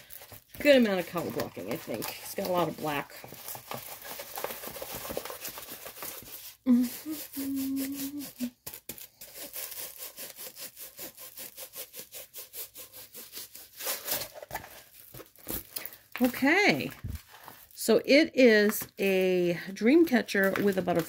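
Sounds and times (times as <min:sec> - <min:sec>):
canvas and plastic wrapping rubbing: 0:00.0 - 0:17.9
person humming: 0:06.7 - 0:08.6.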